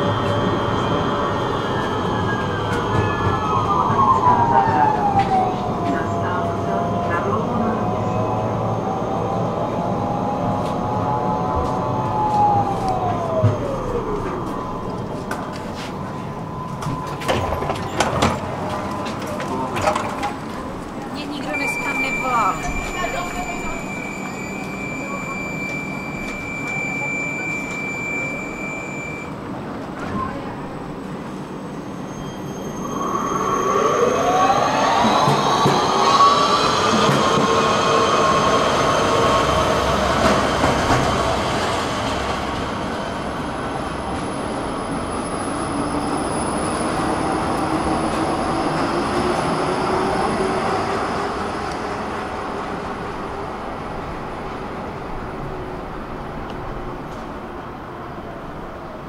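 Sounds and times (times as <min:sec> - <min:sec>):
street traffic: 0:00.0 - 0:28.6
electric tram drive whining: 0:00.0 - 0:59.0.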